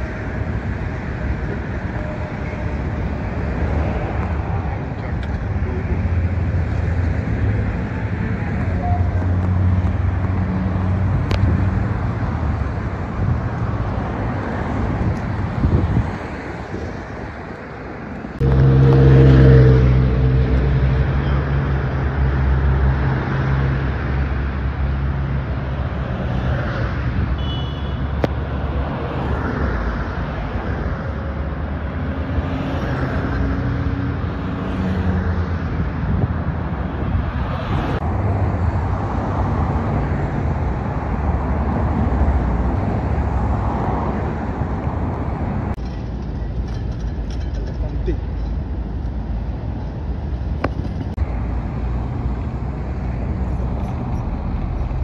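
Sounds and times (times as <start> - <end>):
cars passing on busy road: 0.0 - 55.0
heavy engine passing: 18.3 - 24.4.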